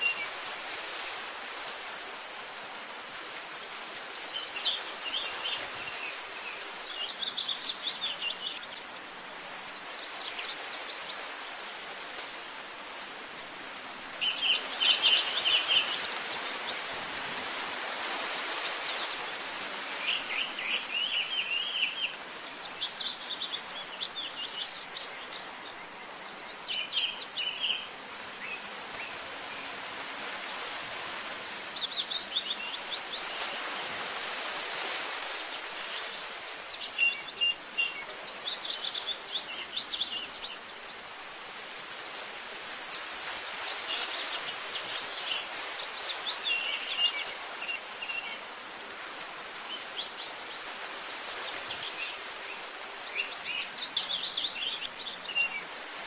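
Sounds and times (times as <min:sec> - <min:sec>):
small birds chirping: 0:14.0 - 0:29.7, 0:30.4 - 0:33.6, 0:35.3 - 0:48.6, 0:49.6 - 0:55.8.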